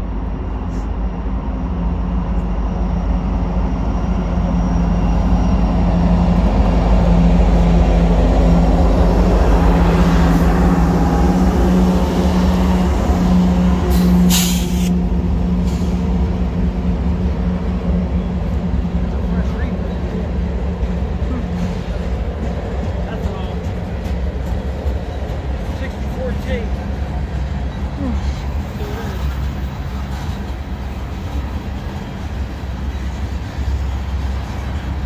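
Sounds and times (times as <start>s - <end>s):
locomotive engines droning: 0.0s - 35.0s
freight cars rumbling: 2.9s - 35.0s
brief hiss: 14.3s - 15.0s.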